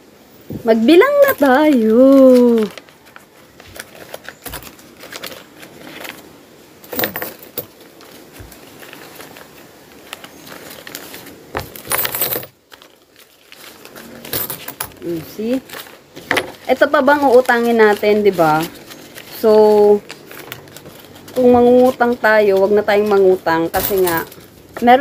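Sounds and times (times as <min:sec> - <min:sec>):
coins clinking: 0:01.0 - 0:02.7, 0:06.8 - 0:07.7, 0:11.8 - 0:12.6, 0:14.0 - 0:15.7, 0:16.3 - 0:25.0
banknotes rustling: 0:01.0 - 0:25.0.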